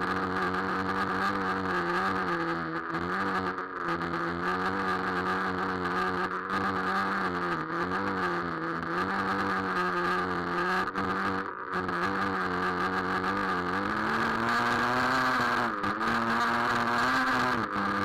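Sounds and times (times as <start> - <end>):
small engine buzzing idle: 0.0 - 18.0.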